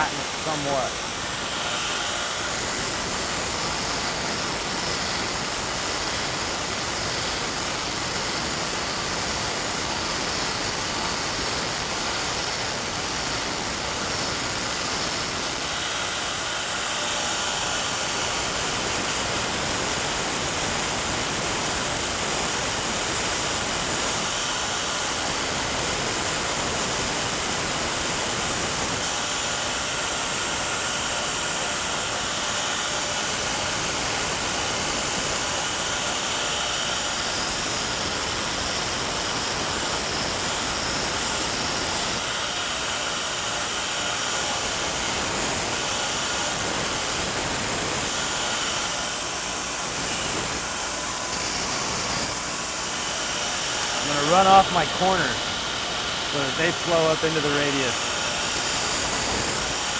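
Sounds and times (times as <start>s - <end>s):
power grinder grinding steel: 30.3s - 59.9s.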